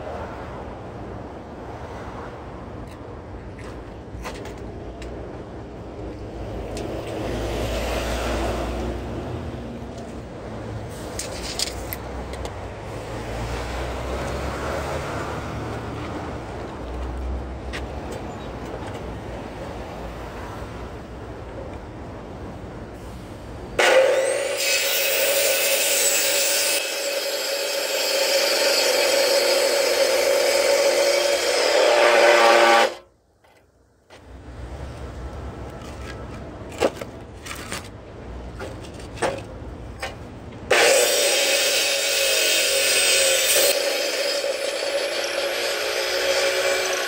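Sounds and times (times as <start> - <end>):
miter saw cutting timber: 23.8 - 33.1, 40.7 - 47.0.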